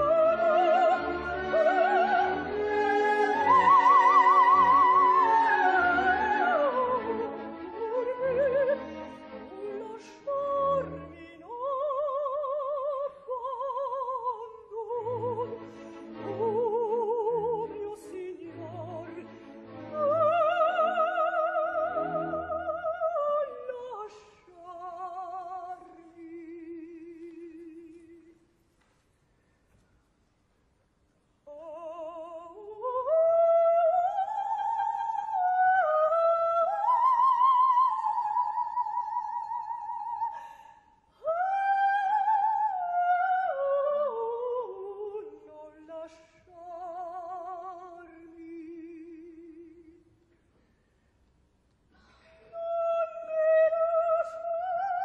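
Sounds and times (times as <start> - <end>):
soprano singing with vibrato: 0.0 - 19.3, 19.9 - 28.4, 31.5 - 50.1, 52.4 - 55.0
soft orchestral accompaniment: 0.0 - 28.4.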